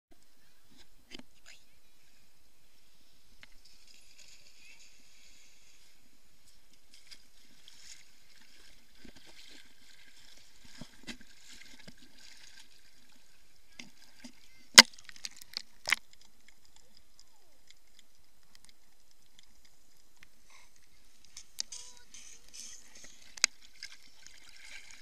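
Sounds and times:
muffled water sloshing: 3.5s - 21.6s, 23.1s - 25.0s.

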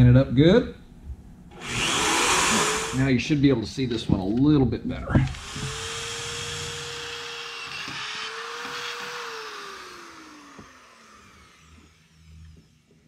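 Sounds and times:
electric drill cutting steel: 1.5s - 3.2s, 5.3s - 13.0s.

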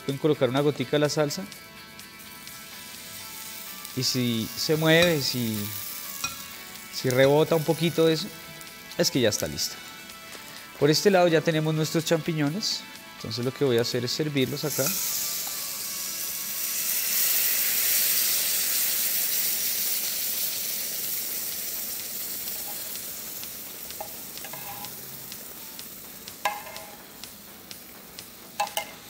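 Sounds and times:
sauce sizzling in a skillet: 0.0s - 29.0s
metal spoon clinking on pans: 4.9s - 5.4s, 6.2s - 6.5s, 24.0s - 25.0s, 26.4s - 27.1s, 28.6s - 29.0s.

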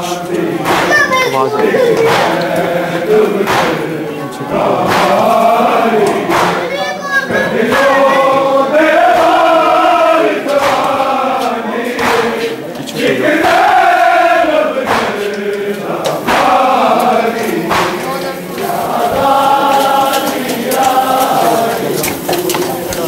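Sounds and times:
men chanting a lament: 0.0s - 23.0s
sharp slaps: 0.6s - 1.3s, 2.0s - 4.0s, 4.8s - 6.8s, 7.7s - 8.3s, 9.0s - 9.8s, 10.4s - 23.0s.

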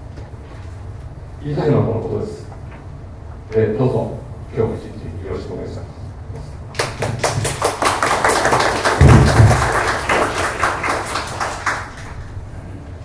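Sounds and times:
audience applauding: 6.8s - 12.4s.

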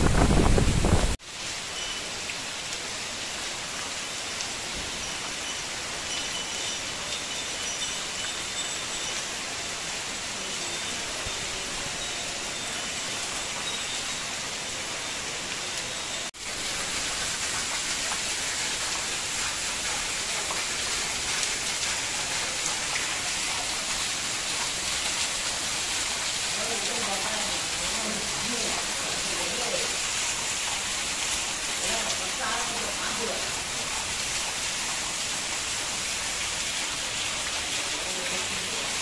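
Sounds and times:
heavy rain on pavement: 0.0s - 39.0s.

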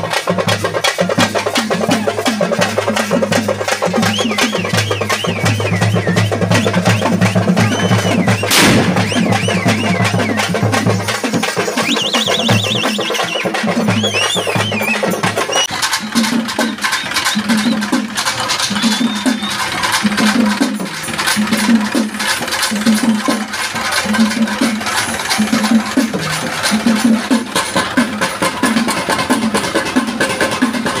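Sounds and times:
drum ensemble playing: 0.0s - 31.0s
low drum beat: 1.7s - 12.8s.

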